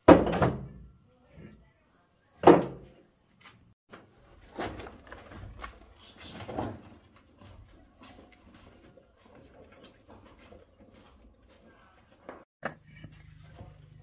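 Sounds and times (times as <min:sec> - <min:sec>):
objects knocking and clattering: 0:00.0 - 0:00.8, 0:03.9 - 0:12.8.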